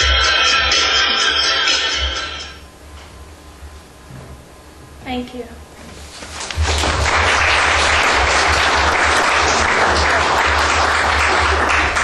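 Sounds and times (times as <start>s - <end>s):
audience applauding: 6.5s - 12.0s.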